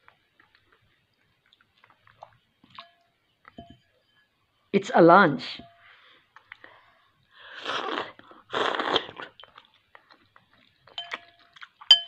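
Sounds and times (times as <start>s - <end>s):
metal spoon clinking bowl: 2.8s - 4.3s, 10.9s - 12.0s
mouth eating noises: 7.5s - 12.0s.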